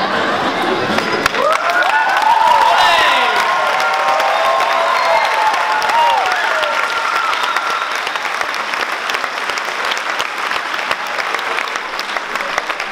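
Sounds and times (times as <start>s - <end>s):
audience applauding: 0.6s - 12.9s
person cheering: 1.4s - 7.9s.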